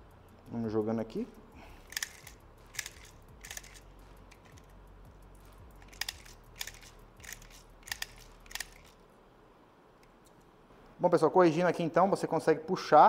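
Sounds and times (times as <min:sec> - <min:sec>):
pellets clicking into magazine: 0:01.8 - 0:04.7, 0:05.8 - 0:09.0.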